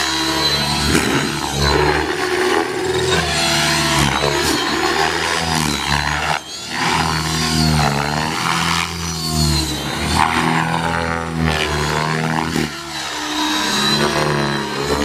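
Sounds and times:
rc helicopter rotor buzzing: 0:00.0 - 0:15.0.

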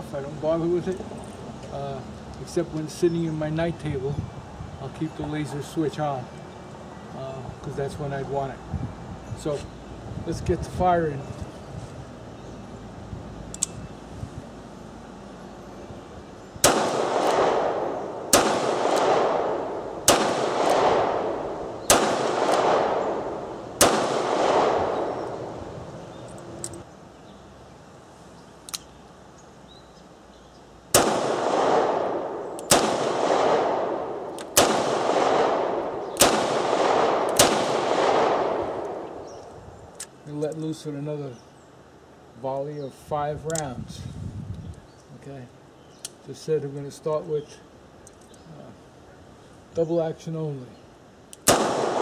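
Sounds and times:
revolver gunshots with echo: 0:16.6 - 0:25.6, 0:30.9 - 0:39.4, 0:51.4 - 0:52.0.

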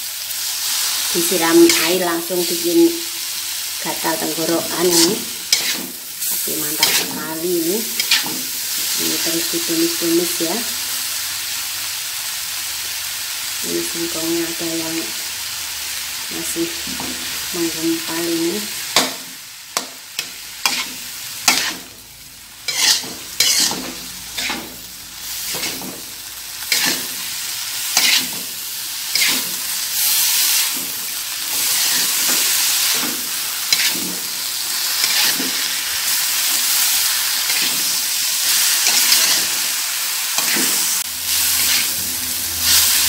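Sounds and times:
food sizzling: 0:00.0 - 0:43.0
metal spatula scraping a wok: 0:04.1 - 0:09.0, 0:19.8 - 0:22.0, 0:22.6 - 0:43.0.

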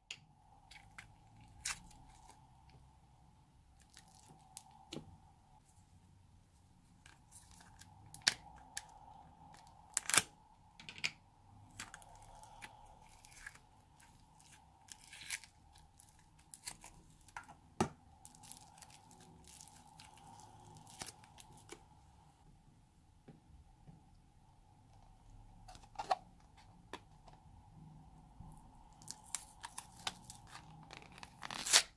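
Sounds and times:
faint steady hum: 0:00.0 - 0:31.8
slime squelching and crackling: 0:11.6 - 0:17.4, 0:18.2 - 0:22.0, 0:28.8 - 0:31.9.

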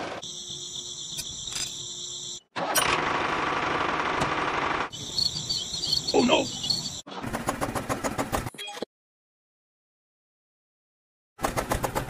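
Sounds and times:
insects buzzing: 0:00.2 - 0:02.5, 0:04.9 - 0:07.0.

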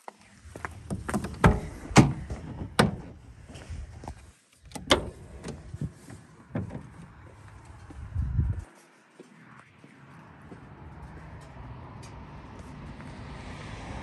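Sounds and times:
low rumbling handling noise: 0:00.5 - 0:08.6
van door latch clicks and clunks: 0:00.9 - 0:03.2, 0:04.6 - 0:07.1.

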